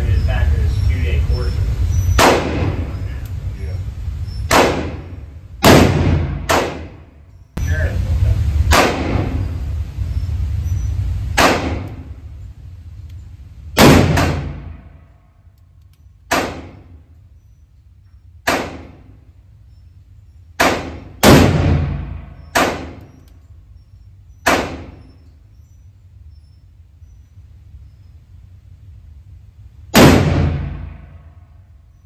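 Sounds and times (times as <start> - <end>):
revolver gunshots echoing: 2.0 - 3.2, 4.4 - 7.2, 8.6 - 9.6, 11.2 - 12.3, 13.8 - 15.1, 16.3 - 17.0, 18.4 - 19.2, 20.6 - 23.2, 24.4 - 25.1, 29.9 - 31.6.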